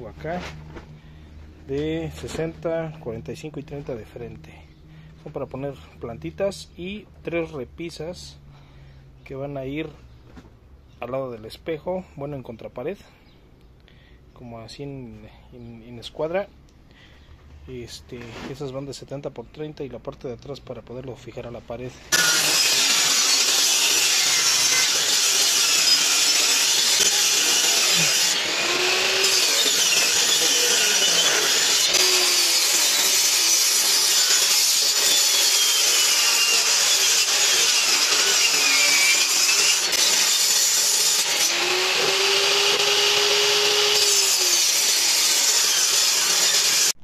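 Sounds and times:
table saw cutting wood: 0:22.1 - 0:47.0.

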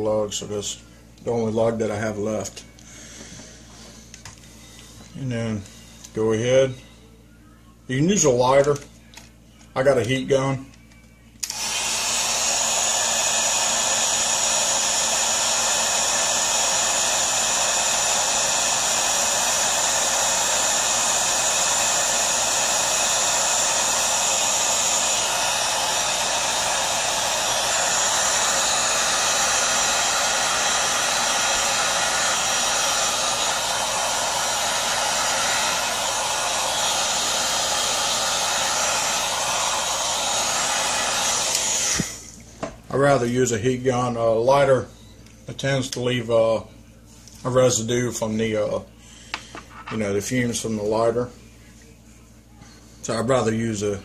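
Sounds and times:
heat gun blowing: 0:11.4 - 0:42.4.

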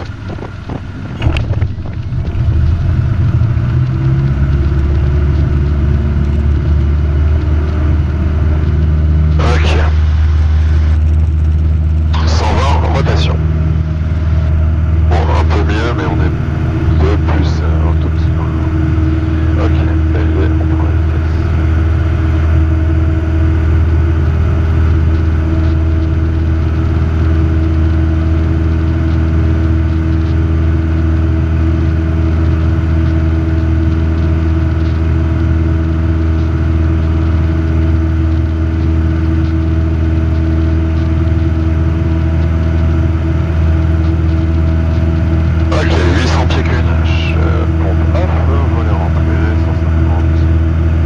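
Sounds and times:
light aircraft engine droning: 0:00.0 - 0:51.0.

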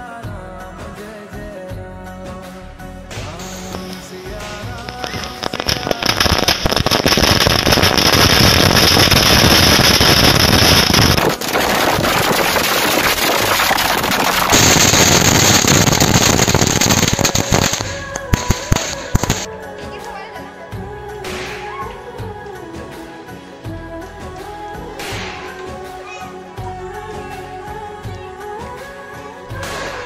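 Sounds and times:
firecrackers cracking: 0:03.1 - 0:19.5, 0:21.3 - 0:22.0, 0:25.0 - 0:26.5, 0:29.5 - 0:30.0
high hiss: 0:03.2 - 0:19.5.

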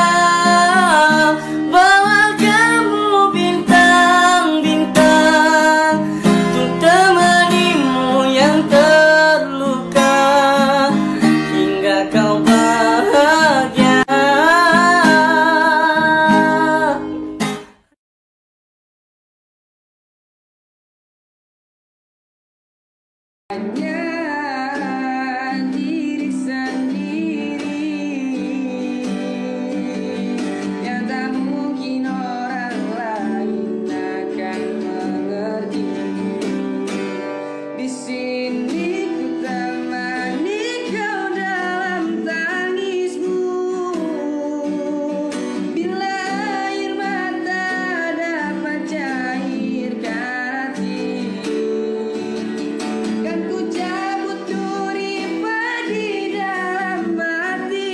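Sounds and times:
man singing a ballad: 0:00.0 - 0:17.2, 0:23.5 - 0:36.8, 0:37.7 - 0:57.9
acoustic guitar: 0:00.0 - 0:18.0, 0:23.5 - 0:57.9.

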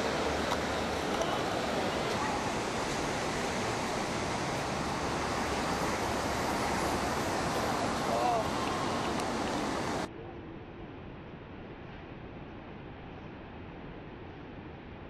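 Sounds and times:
wind rushing: 0:00.0 - 0:10.1.

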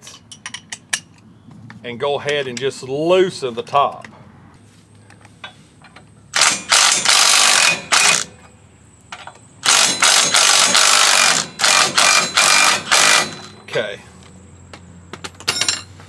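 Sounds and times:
electric ratchet running: 0:06.4 - 0:08.3, 0:09.6 - 0:13.5.

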